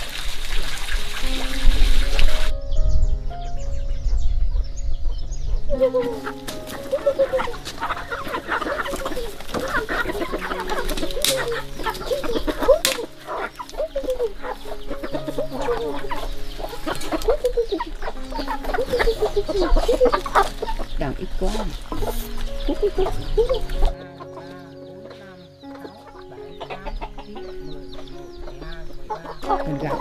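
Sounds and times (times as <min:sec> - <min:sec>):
chickens clucking: 0:04.6 - 0:30.0.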